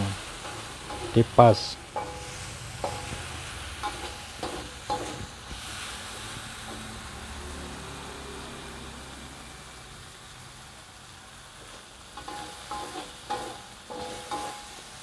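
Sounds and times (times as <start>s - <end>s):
metal spatula scraping a wok: 0.0s - 7.1s, 12.1s - 15.0s
paste sizzling in a wok: 0.0s - 15.0s.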